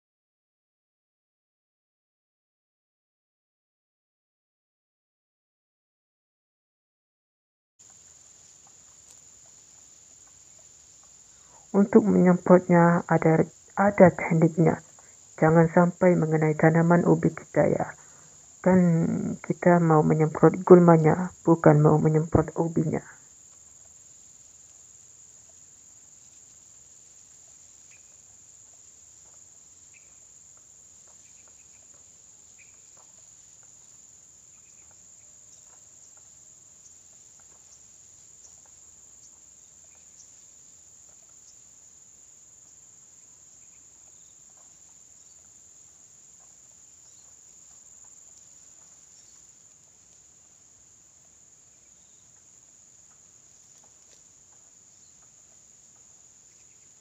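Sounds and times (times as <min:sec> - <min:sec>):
faint ticks: 0:07.8 - 0:11.8, 0:14.8 - 0:15.4, 0:23.2 - 0:41.7, 0:43.4 - 0:57.0
high-pitched insect chorus: 0:07.8 - 0:57.0.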